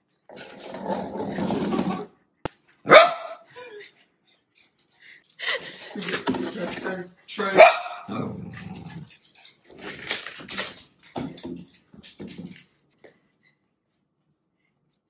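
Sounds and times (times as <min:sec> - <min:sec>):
dog growling and barking: 0:07.6 - 0:09.1.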